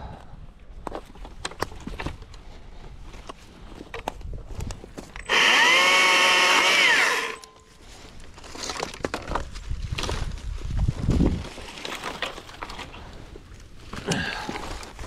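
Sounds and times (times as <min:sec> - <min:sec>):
electric chainsaw whine: 0:05.2 - 0:07.6
twigs crackling and snapping: 0:06.0 - 0:15.0.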